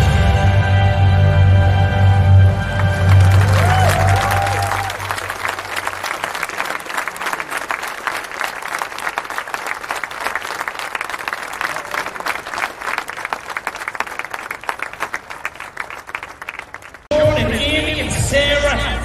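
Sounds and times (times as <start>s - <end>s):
crowd clapping and applauding: 2.6s - 17.1s.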